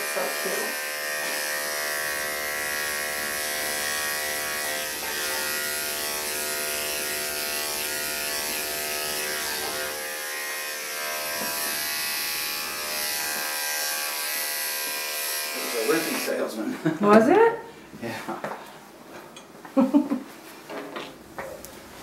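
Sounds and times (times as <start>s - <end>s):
electric clippers buzzing: 0.0s - 16.4s.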